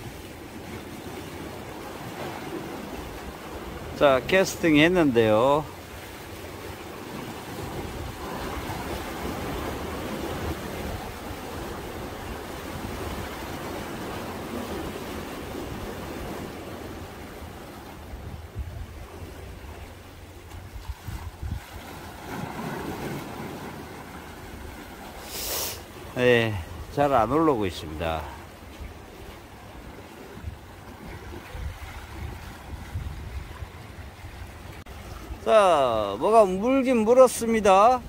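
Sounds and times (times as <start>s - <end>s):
sea waves washing against rocks: 0.0s - 38.0s
wind buffeting microphone: 6.6s - 25.0s, 28.3s - 35.5s.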